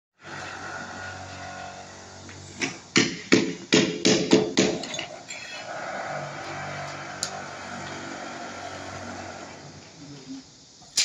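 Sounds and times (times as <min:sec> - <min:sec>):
hammer strikes: 0:02.6 - 0:05.0.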